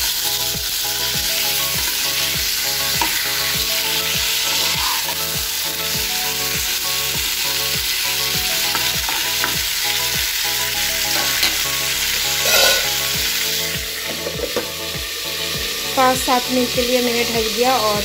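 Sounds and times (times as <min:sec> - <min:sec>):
mango sizzling in hot oil: 0:00.0 - 0:18.0
metal spatula scraping a pan: 0:04.3 - 0:05.3, 0:11.0 - 0:11.7, 0:12.3 - 0:13.2.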